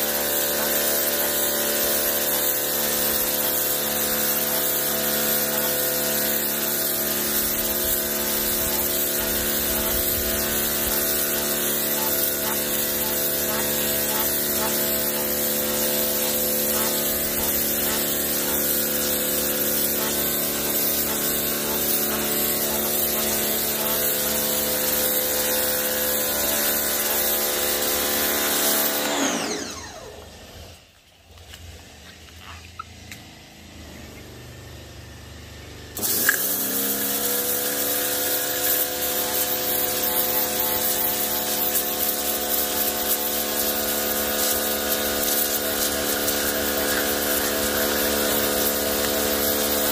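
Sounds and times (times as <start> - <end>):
water spray hissing: 0.0 - 29.1, 36.0 - 49.9
pressure washer running: 0.0 - 30.8, 33.1 - 49.9
pressure washer click: 8.6 - 24.1, 36.0 - 36.6.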